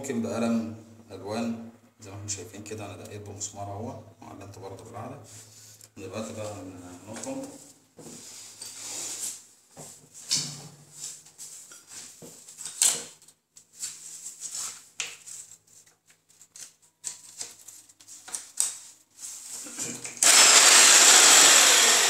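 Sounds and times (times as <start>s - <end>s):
drilling: 20.2s - 22.0s.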